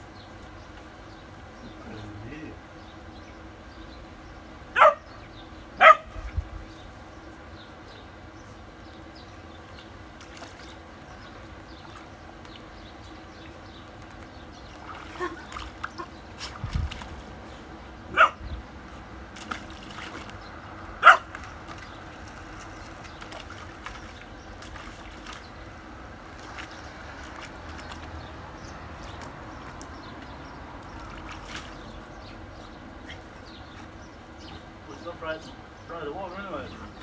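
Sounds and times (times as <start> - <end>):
puppy splashing in water: 8.9 - 34.9.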